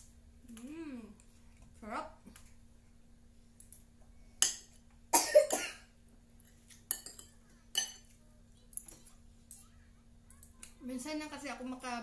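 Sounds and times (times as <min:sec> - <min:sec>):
person coughing: 0:05.2 - 0:05.9.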